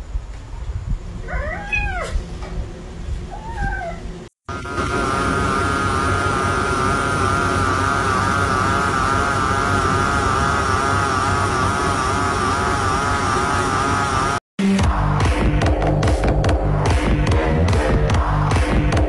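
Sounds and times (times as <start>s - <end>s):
cat meowing: 1.2s - 2.2s, 3.3s - 4.1s.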